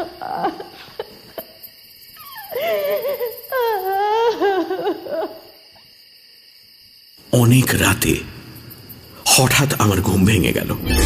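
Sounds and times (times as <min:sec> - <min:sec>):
woman wailing and sobbing: 0:02.5 - 0:05.4.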